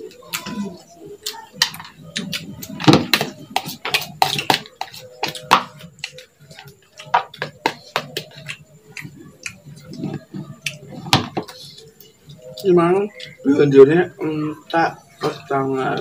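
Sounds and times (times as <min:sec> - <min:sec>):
plastic bowl knocking: 0:02.8 - 0:05.7, 0:11.0 - 0:11.6.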